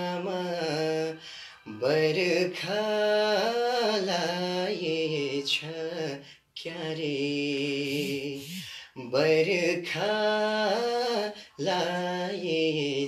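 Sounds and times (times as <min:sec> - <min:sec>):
man singing unaccompanied: 0:00.0 - 0:13.0
short breaths: 0:07.9 - 0:09.0.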